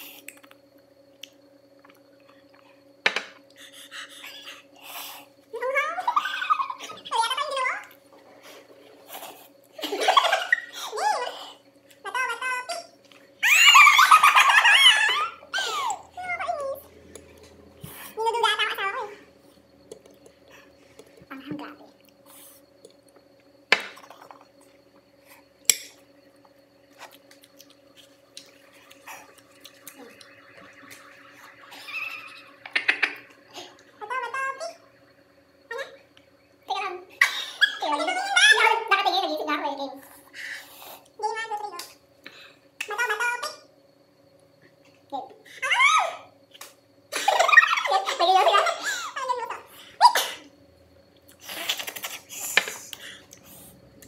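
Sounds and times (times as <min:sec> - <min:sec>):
faint steady hum: 0:00.0 - 0:54.0
high-pitched squeal: 0:27.9 - 0:38.5.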